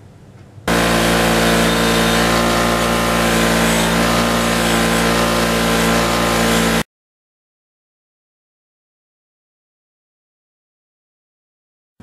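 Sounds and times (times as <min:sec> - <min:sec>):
wire wheel brushing rust off bolt: 0:00.7 - 0:06.8.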